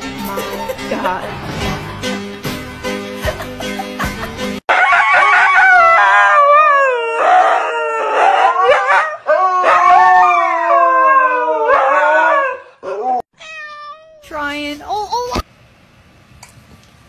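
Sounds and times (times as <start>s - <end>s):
husky howling: 4.7s - 13.3s.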